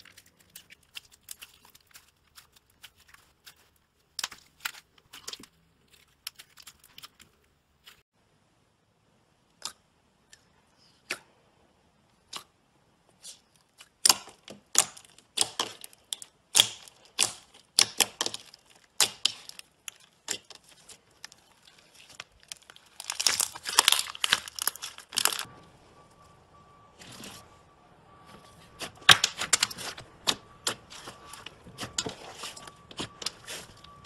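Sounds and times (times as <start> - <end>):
slime popping and crackling: 13.8 - 25.5.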